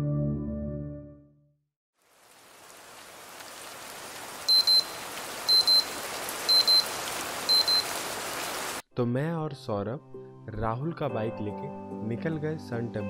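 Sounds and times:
electronic alarm beeping: 4.5s - 5.9s, 6.5s - 6.9s, 7.5s - 7.8s.

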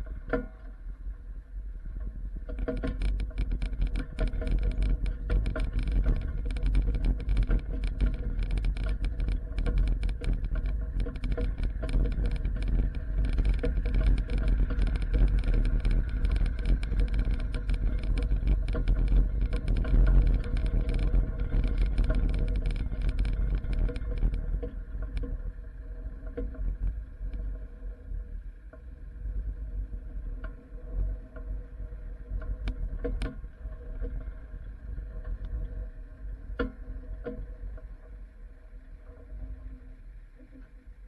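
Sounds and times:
crackling rattle: 1.9s - 41.0s.

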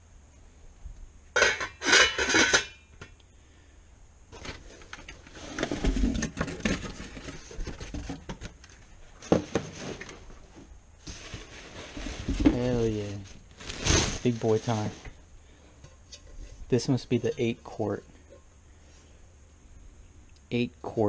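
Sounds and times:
metal pots and lids clanking: 1.4s - 3.1s
metal-on-metal clatter: 1.4s - 3.1s
knocking and rubbing handling noise: 4.4s - 18.5s.

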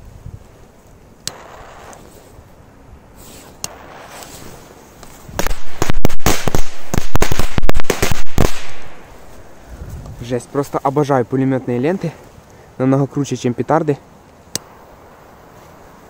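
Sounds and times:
torch lighter clicking: 3.6s - 4.3s
firecrackers banging rapidly: 5.3s - 9.0s.

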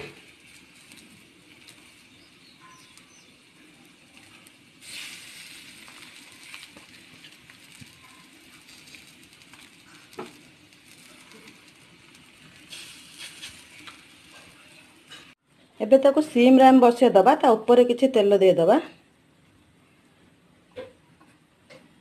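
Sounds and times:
patties sizzling on griddle: 0.0s - 15.4s.

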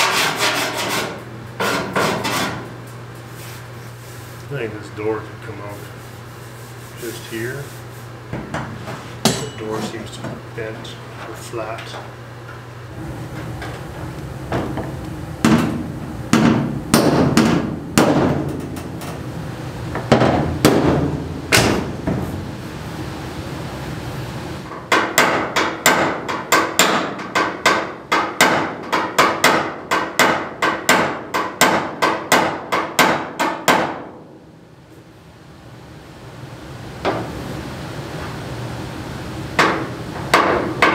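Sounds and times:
hammer striking sheet metal: 15.4s - 18.8s.

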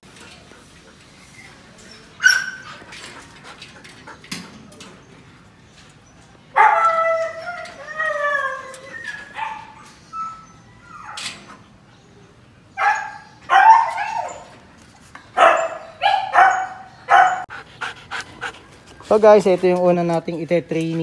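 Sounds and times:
dogs barking and yipping: 2.0s - 4.5s, 6.5s - 11.8s, 12.8s - 19.1s.

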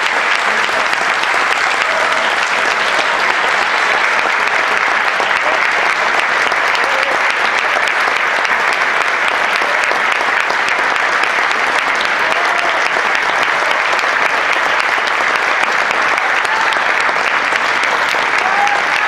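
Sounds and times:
audience applauding: 0.0s - 19.0s.

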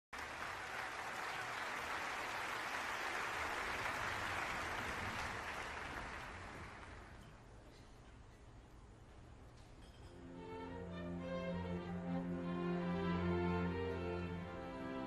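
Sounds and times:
audience applauding: 0.1s - 7.2s.

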